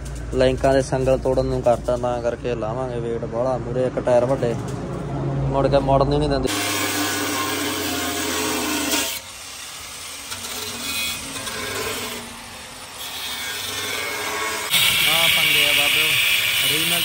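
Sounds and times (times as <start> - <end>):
angle grinder cutting sheet metal: 6.5 - 17.0.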